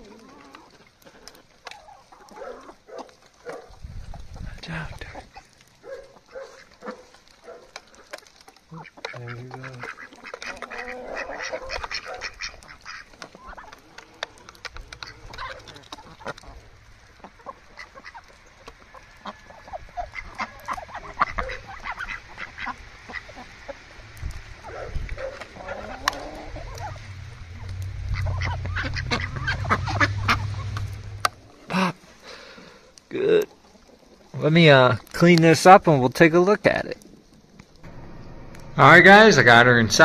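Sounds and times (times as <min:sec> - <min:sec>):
ducks quacking: 0:04.3 - 0:24.0, 0:24.6 - 0:32.7
low rumble: 0:23.9 - 0:31.6, 0:37.7 - 0:40.0.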